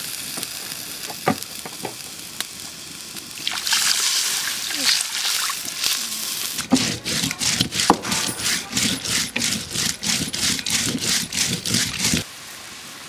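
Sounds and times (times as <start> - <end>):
stone-on-stone grinding: 6.6 - 12.2.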